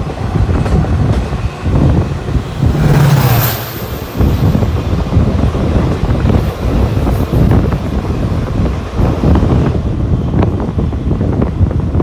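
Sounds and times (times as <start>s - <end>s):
locomotive engine drone: 0.0s - 8.9s
train wind and running noise: 0.0s - 12.0s.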